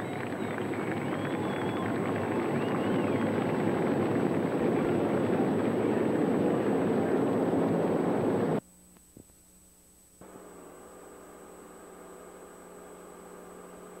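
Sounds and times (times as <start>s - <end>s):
racing car engines: 0.0s - 8.6s
videotape hiss and hum: 0.0s - 14.0s.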